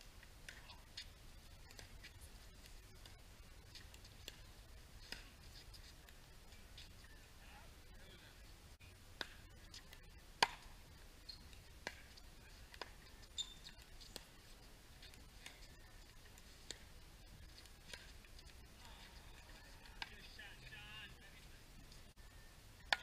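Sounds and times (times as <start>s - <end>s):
paddles hitting plastic ball: 9.2s - 10.7s, 11.6s - 14.3s.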